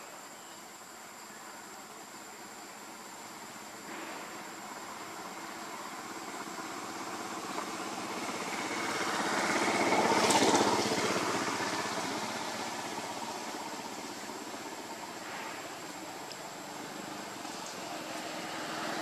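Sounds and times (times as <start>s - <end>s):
small engine passing by: 3.9s - 19.0s.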